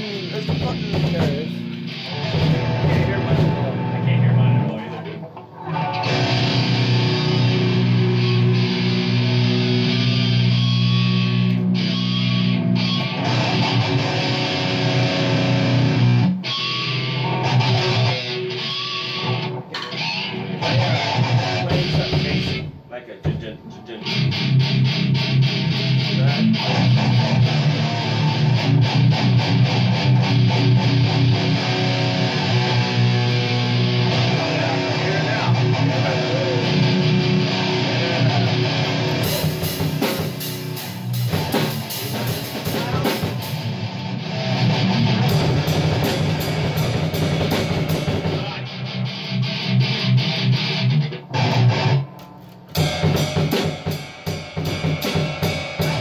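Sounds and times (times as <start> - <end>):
drum kit: 0.0 - 4.9, 5.9 - 56.0
electric guitars: 0.0 - 56.0.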